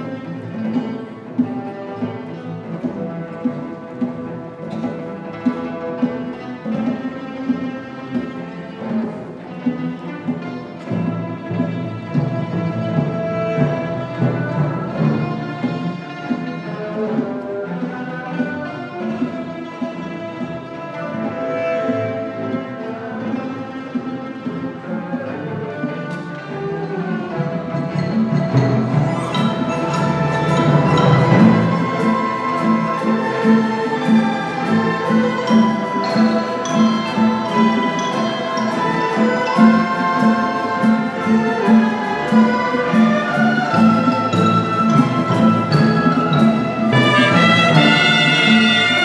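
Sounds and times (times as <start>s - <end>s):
bowed and wind instruments: 0.0s - 49.0s
orchestra playing: 0.0s - 49.0s
low percussion strokes: 26.9s - 49.0s.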